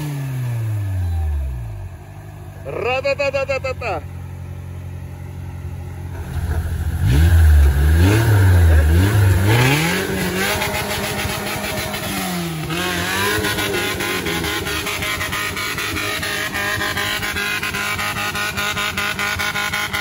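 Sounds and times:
engine revving: 0.0 - 2.0, 6.0 - 20.0.

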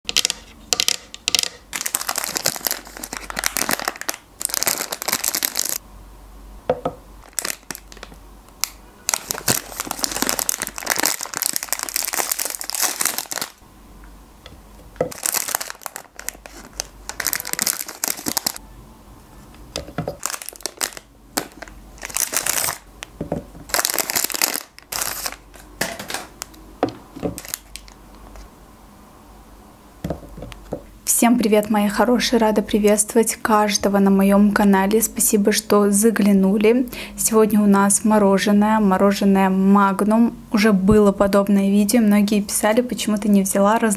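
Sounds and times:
plastic wrappers crinkling: 0.2 - 5.8, 7.2 - 13.6, 15.0 - 18.6, 19.8 - 26.6, 27.3 - 28.4.

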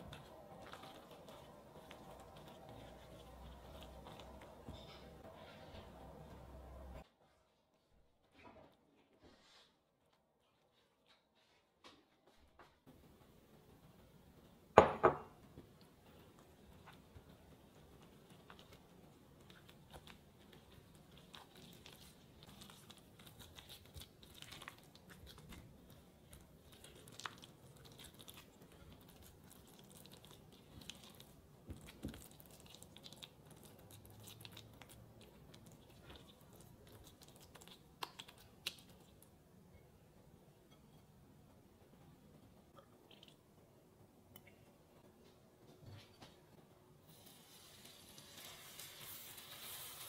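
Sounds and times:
spatula stirring wet batter: 0.0 - 7.0, 15.4 - 43.7, 47.1 - 50.0.

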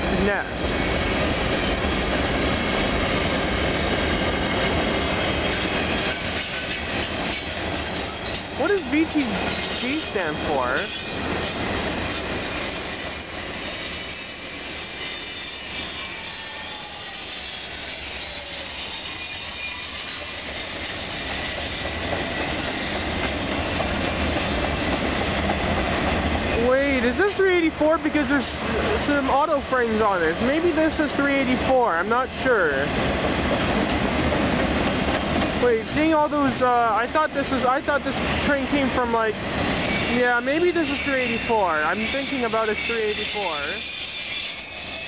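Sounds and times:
freight train cars rolling: 0.0 - 45.0
high wheel squeals: 3.4 - 25.3, 37.1 - 45.0.

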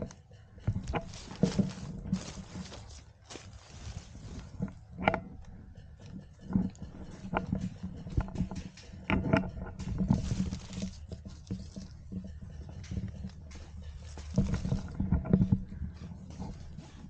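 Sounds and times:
gear knocking and clicking: 0.0 - 17.0
dry leaves rustling and crackling: 0.7 - 4.9, 9.8 - 12.1, 12.7 - 15.0.

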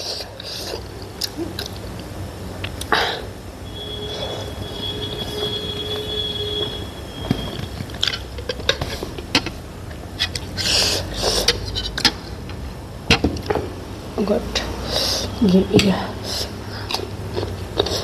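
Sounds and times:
eating noises: 0.0 - 6.0, 7.6 - 12.6, 14.8 - 18.0
high whistle-like tone: 3.6 - 7.8.

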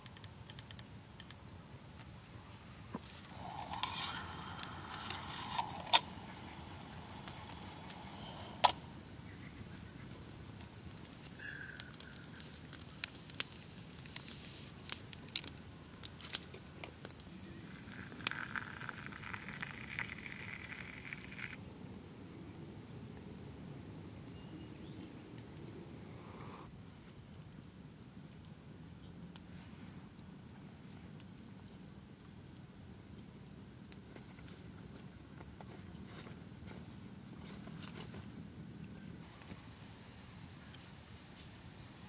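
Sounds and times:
sharp crackles and snaps: 0.0 - 21.8
faint steady hiss: 0.0 - 42.0.

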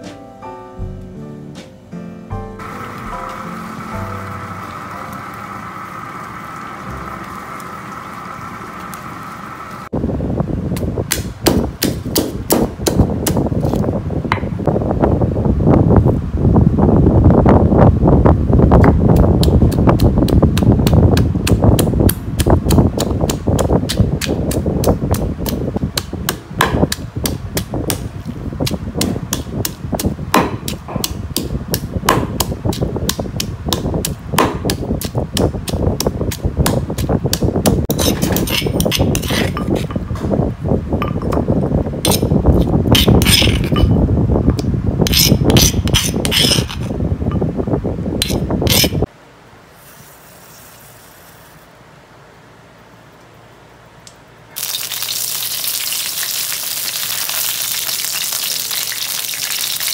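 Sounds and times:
stone pestle pounding in mortar: 11.1 - 13.5, 19.4 - 39.9.

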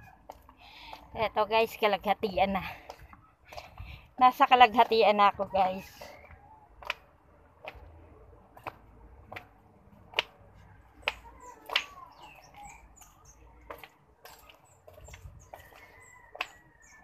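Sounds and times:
footsteps on concrete stairs: 0.0 - 17.0.

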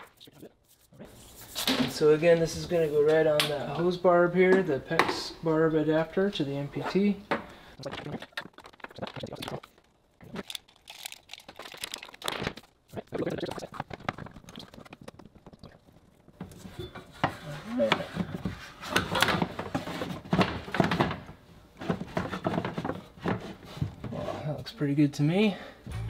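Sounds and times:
rustling and crinkling: 7.8 - 24.5.

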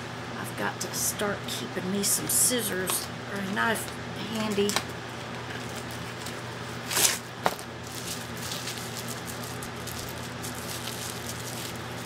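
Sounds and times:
steady low hum: 0.0 - 12.0
light plastic crinkling: 4.5 - 12.0
plastic packaging rustling: 4.6 - 12.0.

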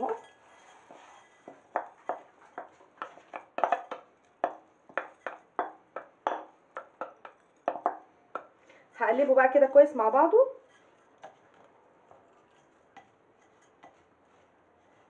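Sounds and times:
wooden spoon tapping a bowl: 1.4 - 8.6.

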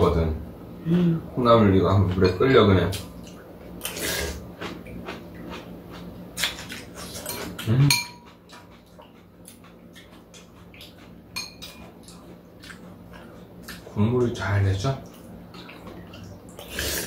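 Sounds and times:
slurping and chewing: 2.9 - 14.0, 15.1 - 17.0
spoons clinking against bowls: 7.2 - 8.4, 11.4 - 11.9.

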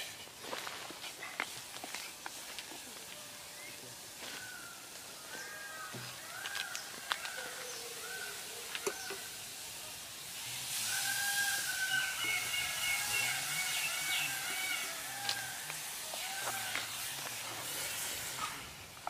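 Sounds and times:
hissing sizzle: 1.7 - 19.0
bird chirping: 11.6 - 15.5.

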